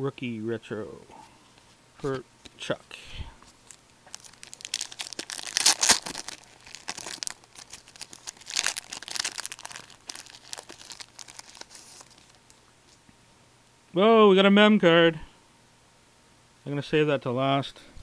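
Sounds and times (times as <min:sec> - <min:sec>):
plastic wrapper tearing and crinkling: 0:03.6 - 0:13.0.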